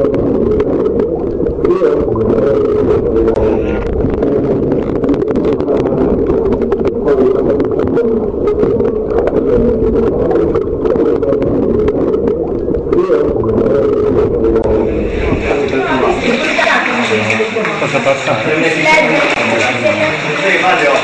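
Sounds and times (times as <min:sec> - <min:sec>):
underground stream roaring: 0:00.0 - 0:21.0.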